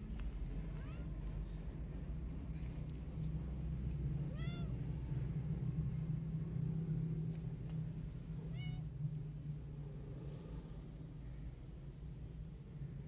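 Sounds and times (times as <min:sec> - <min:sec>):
steady low hum: 0:00.0 - 0:13.0
kitten meowing: 0:04.3 - 0:04.8.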